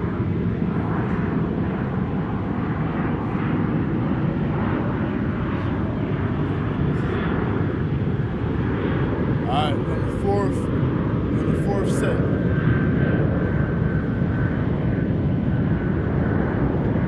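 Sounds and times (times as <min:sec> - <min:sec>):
low outdoor rumble: 0:00.0 - 0:12.6.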